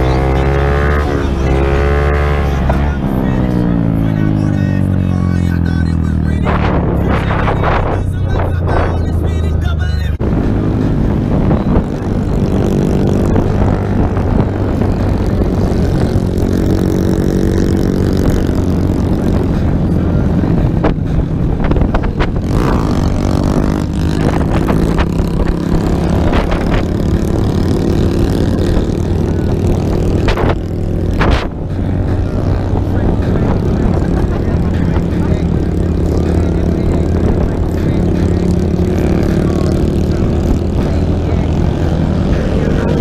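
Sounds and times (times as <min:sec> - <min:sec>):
wind on microphone: 0:06.4 - 0:09.4, 0:10.2 - 0:43.0.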